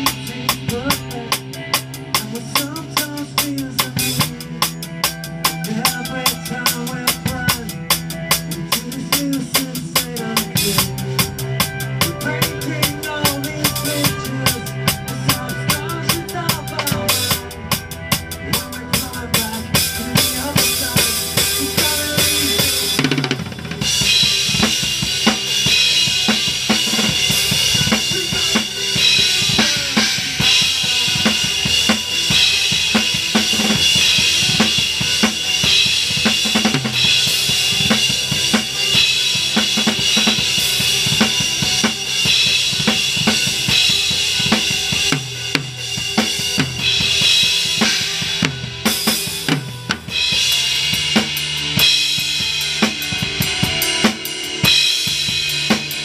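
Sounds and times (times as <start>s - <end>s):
band playing: 0.0s - 56.0s
rock drum beat: 0.0s - 56.0s.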